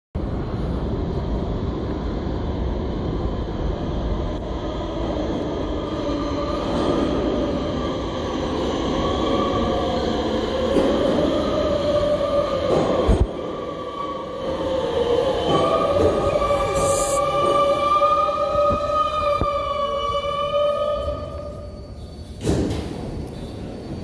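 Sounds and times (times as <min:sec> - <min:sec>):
subway train rumble: 0:00.2 - 0:24.0.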